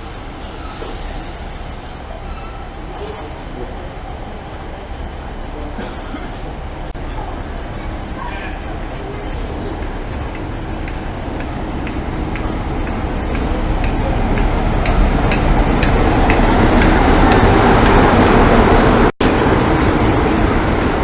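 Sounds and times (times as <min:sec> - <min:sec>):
diesel locomotive engine passing: 0:00.0 - 0:21.0.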